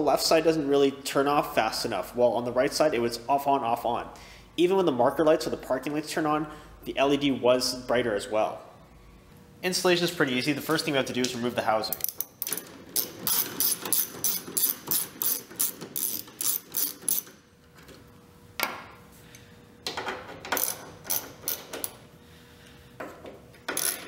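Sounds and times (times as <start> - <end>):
socket ratchet clicking: 11.9 - 17.4, 20.5 - 22.0, 23.7 - 24.0.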